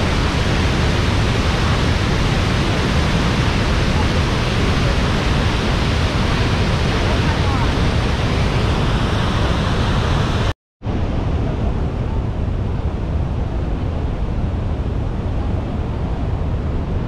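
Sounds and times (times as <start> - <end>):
river rushing: 0.0 - 10.5
waterfall roaring: 0.0 - 11.0
wind rumbling on microphone: 0.0 - 17.0.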